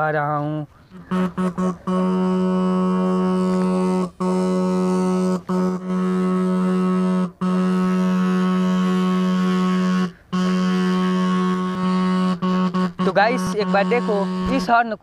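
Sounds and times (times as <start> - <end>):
submerged electric horn blasts: 0.8 - 15.0.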